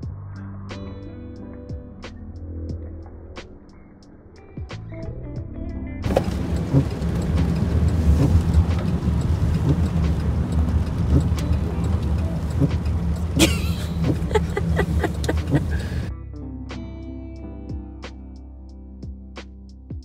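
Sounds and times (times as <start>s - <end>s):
car cabin road rumble: 6.0s - 16.1s
ticks: 6.0s - 16.1s.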